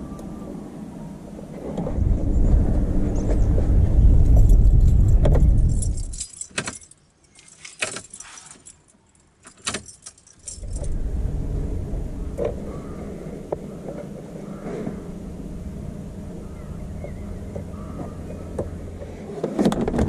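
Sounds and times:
wind rumble on microphone: 0.0s - 6.2s, 10.4s - 20.0s
metallic clicks and jingles: 4.4s - 11.0s.

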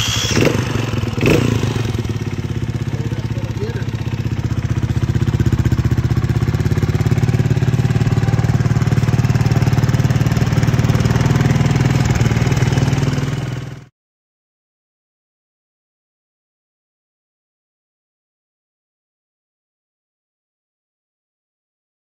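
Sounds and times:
motorcycle engine idling: 0.0s - 13.9s.

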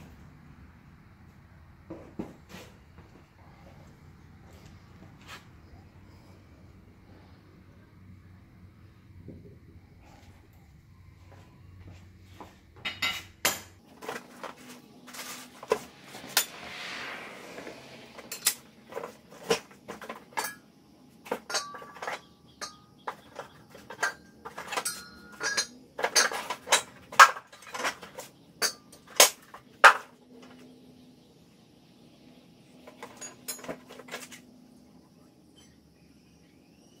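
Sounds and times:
metal parts clanking on concrete: 12.8s - 16.6s, 18.2s - 30.6s, 32.8s - 34.5s.

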